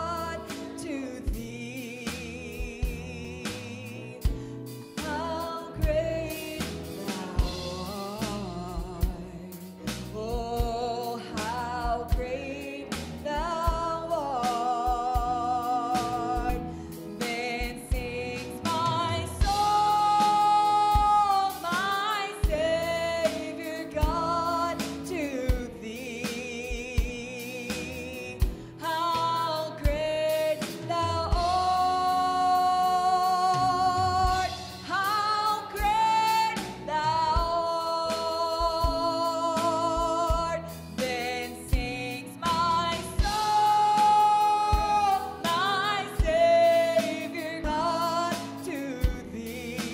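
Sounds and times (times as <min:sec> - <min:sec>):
woman singing with vibrato: 0:00.0 - 0:04.4, 0:05.0 - 0:49.9
bass guitar: 0:00.0 - 0:49.9
drum kit: 0:00.0 - 0:49.9
piano: 0:00.0 - 0:49.9.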